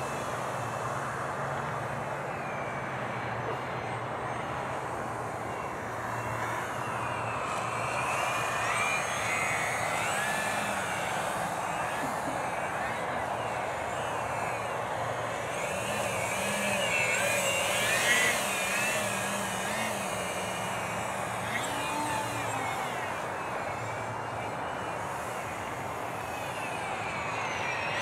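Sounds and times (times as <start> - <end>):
model plane propeller whining: 0.0 - 28.0.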